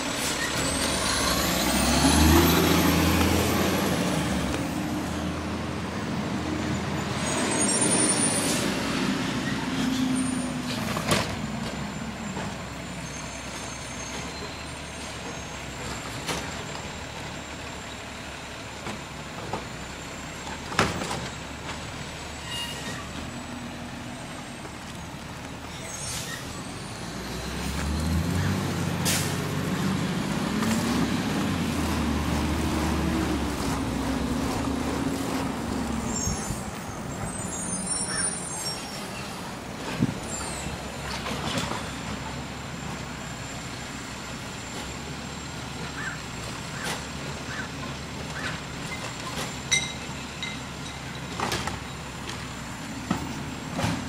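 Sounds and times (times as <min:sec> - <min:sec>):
garbage truck engine revving: 0:00.0 - 0:12.9, 0:25.6 - 0:49.7.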